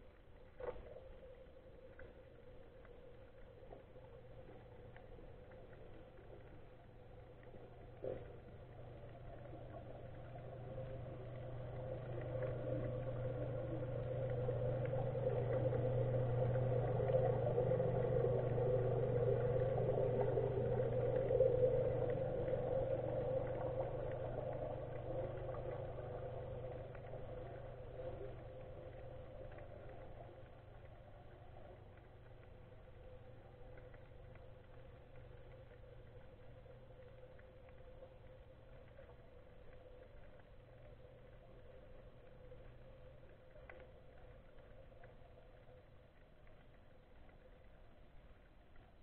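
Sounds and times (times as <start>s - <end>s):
motorboat engine heard underwater: 0.0s - 49.0s.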